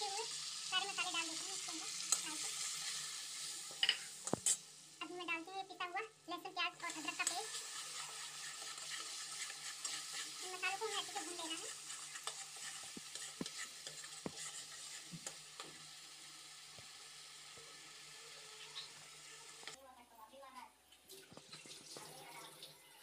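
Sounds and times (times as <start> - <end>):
spices sizzling in oil: 0.0 - 19.8
metal spoon scraping a pan: 1.3 - 4.6, 6.8 - 15.9.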